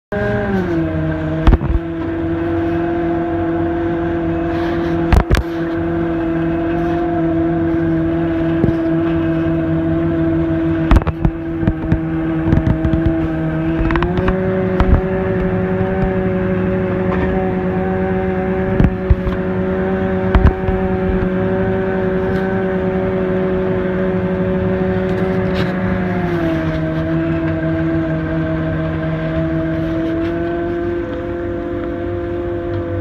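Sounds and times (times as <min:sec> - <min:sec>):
boat engine running: 0:00.1 - 0:33.0
sharp thumps: 0:10.8 - 0:16.3, 0:20.1 - 0:21.4.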